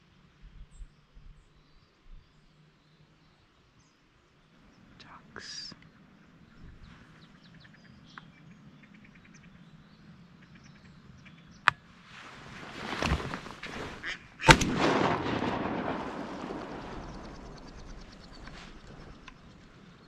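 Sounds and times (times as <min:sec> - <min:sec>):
shotgun shots: 0:14.4 - 0:19.5.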